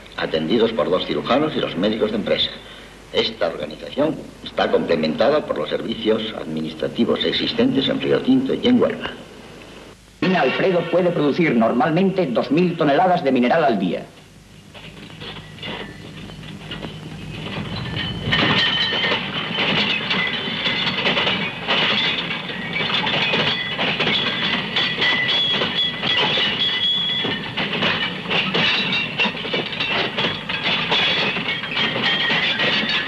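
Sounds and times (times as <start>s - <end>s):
train wagons clattering on rails: 0.0s - 9.2s, 14.7s - 33.0s
high wheel squeal: 22.5s - 27.5s.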